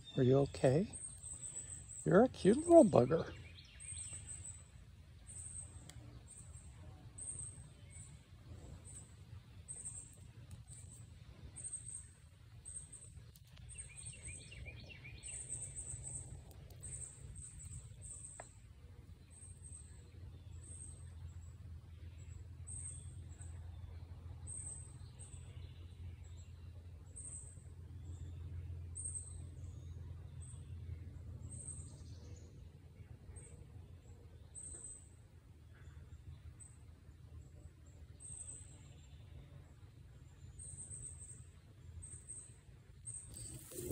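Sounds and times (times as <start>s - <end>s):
low outdoor rumble: 0.0s - 43.9s
bird call: 43.1s - 43.9s.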